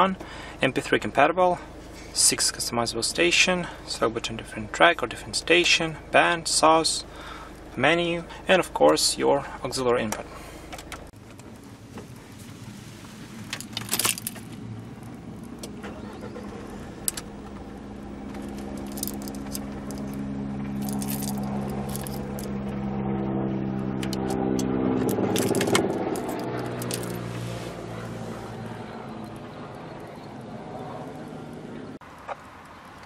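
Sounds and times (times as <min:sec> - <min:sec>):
engine hum: 0:00.0 - 0:33.0
short rattle: 0:13.5 - 0:14.6, 0:18.3 - 0:20.2, 0:20.8 - 0:22.5, 0:25.0 - 0:27.2.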